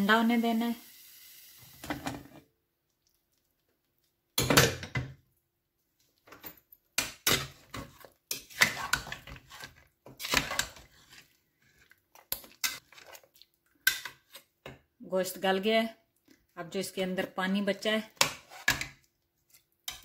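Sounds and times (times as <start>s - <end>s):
metal ladle scraping pot: 7.2s - 13.3s, 18.2s - 19.0s.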